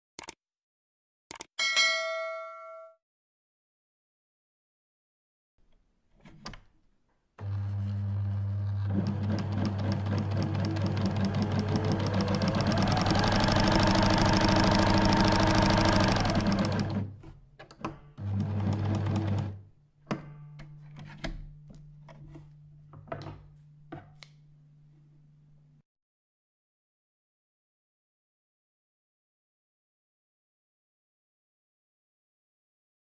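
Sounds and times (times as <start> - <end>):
scattered clicks: 0.2 - 0.4, 1.3 - 1.5
sewing machine stitching: 7.4 - 17.4, 18.0 - 19.6.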